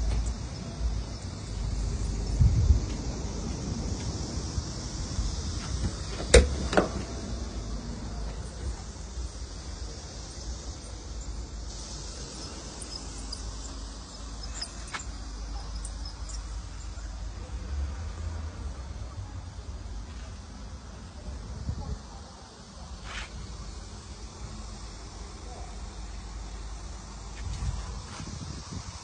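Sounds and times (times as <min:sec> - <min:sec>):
wind rumble on microphone: 0:00.0 - 0:08.8, 0:27.4 - 0:29.0
steady high hiss: 0:00.0 - 0:29.0.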